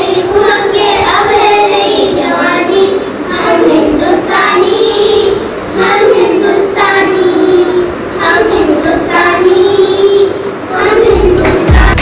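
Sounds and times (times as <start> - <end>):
child singing: 0.0 - 12.0.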